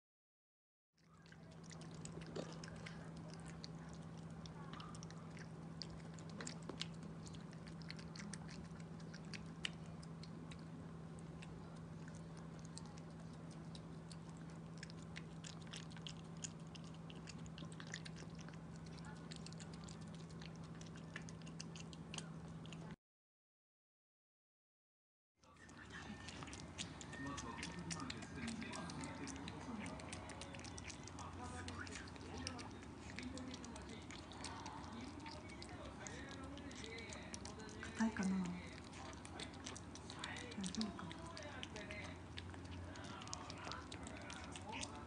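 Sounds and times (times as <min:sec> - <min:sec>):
faint low hum: 0:01.0 - 0:23.0, 0:25.4 - 0:45.0
dog crunching dry kibble: 0:01.1 - 0:22.8, 0:25.6 - 0:45.0.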